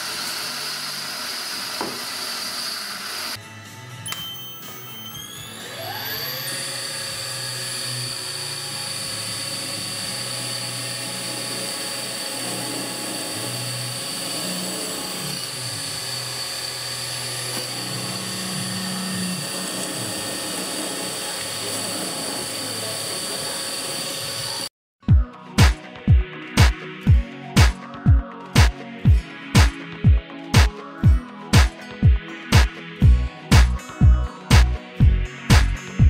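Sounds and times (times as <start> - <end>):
drill boring into metal: 0.0 - 3.4, 4.1 - 24.7
milling spindle whine: 4.1 - 24.7.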